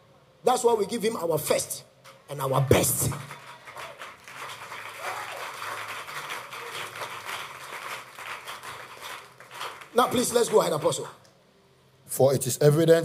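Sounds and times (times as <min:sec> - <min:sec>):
scattered clapping: 0:02.7 - 0:11.2.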